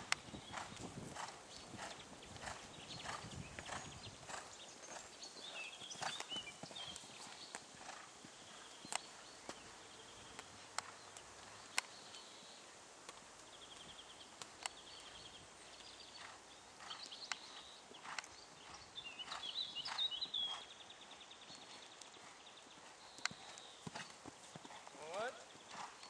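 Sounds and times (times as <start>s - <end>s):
horse hoofbeats cantering: 0.0s - 11.2s, 21.4s - 26.0s.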